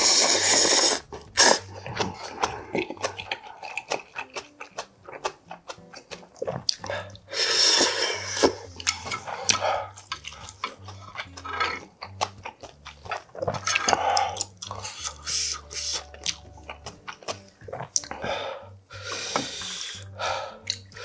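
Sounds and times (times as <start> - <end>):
person slurping noodles: 0.0 - 4.0, 6.5 - 10.9, 13.3 - 16.2
wet chewing mouth sounds: 0.0 - 21.0.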